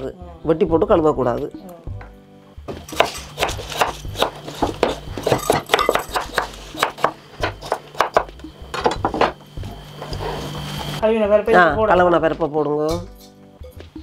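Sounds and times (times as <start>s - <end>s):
knife chopping on wooden board: 2.7s - 9.4s.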